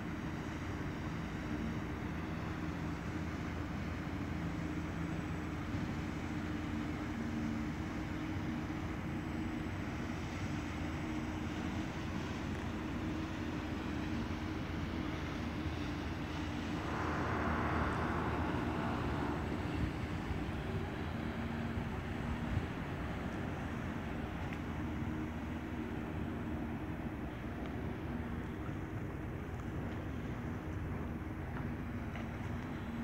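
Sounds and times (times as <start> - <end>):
low motor drone: 11.5 - 33.0
rushing noise: 16.2 - 22.2.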